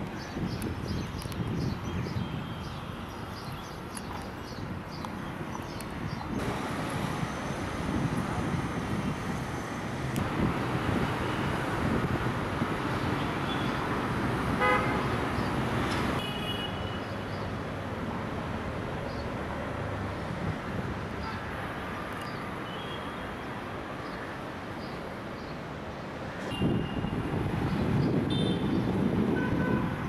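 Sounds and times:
road traffic: 0.0 - 30.0
vehicle horn tooting: 14.6 - 15.0, 16.2 - 17.0, 26.5 - 27.1, 28.3 - 28.7.

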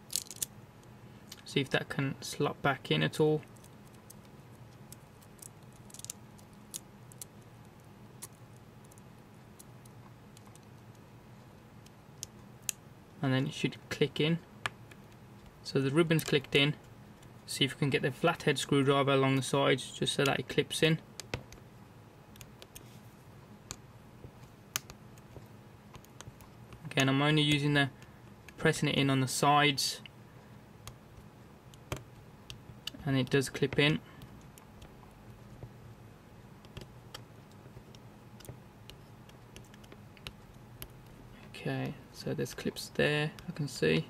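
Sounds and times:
small plastic and metal clicks: 3.5 - 9.0.

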